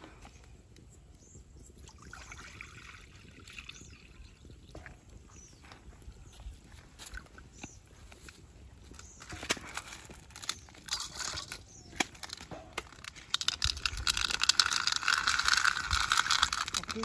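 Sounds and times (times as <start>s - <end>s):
snail shells clattering: 8.9s - 17.0s.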